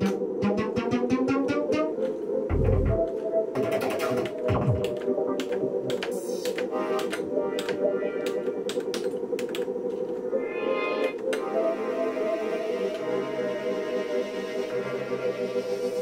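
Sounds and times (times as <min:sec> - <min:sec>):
synthesizer sustained tone: 0:00.0 - 0:16.0
keys and buttons clicking: 0:02.0 - 0:10.3.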